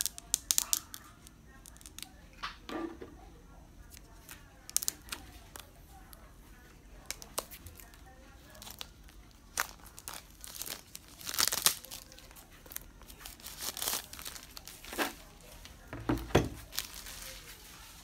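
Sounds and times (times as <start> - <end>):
plastic wrap crinkling and tearing: 0.0 - 2.2, 7.0 - 15.7, 16.6 - 18.0.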